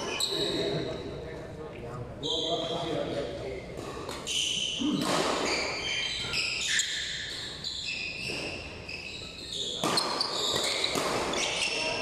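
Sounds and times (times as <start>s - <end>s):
shoes squeaking on court floor: 0.0s - 1.2s, 2.2s - 12.0s
racket hitting shuttlecock: 9.8s - 11.8s.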